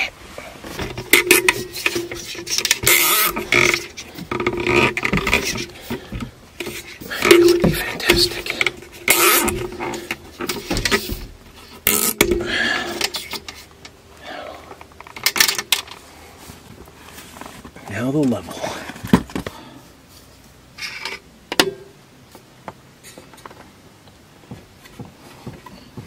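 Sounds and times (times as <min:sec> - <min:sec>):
cable tie zipping: 0:01.2 - 0:05.7, 0:09.1 - 0:10.0, 0:11.8 - 0:12.2.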